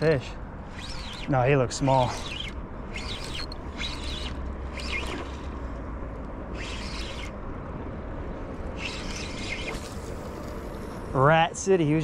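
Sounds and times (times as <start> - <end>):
fishing reel cranking: 0.6 - 5.6, 6.5 - 7.4, 8.8 - 10.4.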